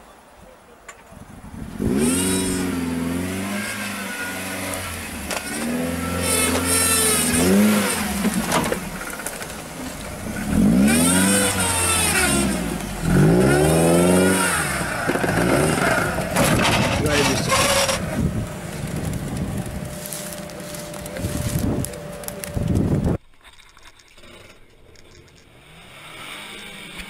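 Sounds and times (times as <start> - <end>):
car engine revving hard: 1.8 - 8.9, 10.2 - 18.2.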